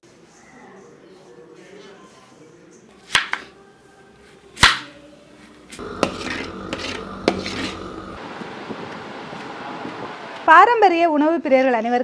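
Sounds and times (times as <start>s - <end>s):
spatula scraping a pan: 5.8s - 8.2s.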